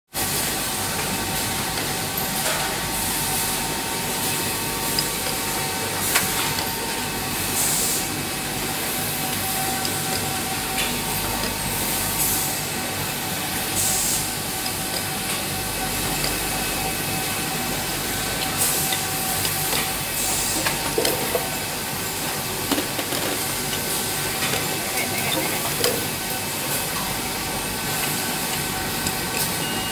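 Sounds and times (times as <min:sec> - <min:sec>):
machine hum with constant tones: 0:00.2 - 0:29.9
pneumatic air hisses: 0:07.5 - 0:08.1, 0:13.8 - 0:14.3, 0:20.2 - 0:20.6.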